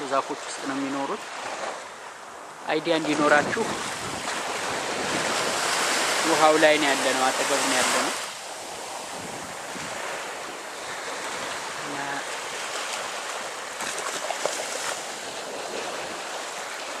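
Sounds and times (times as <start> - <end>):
small surf on sandy shore: 0.0 - 17.0
wind buffeting microphone: 3.0 - 16.5.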